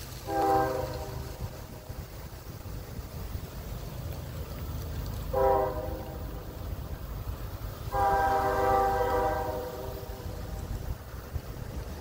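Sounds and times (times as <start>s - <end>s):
steady low rumble: 0.0s - 12.0s
train air horn chord: 0.2s - 1.5s, 5.3s - 6.2s, 7.9s - 10.3s.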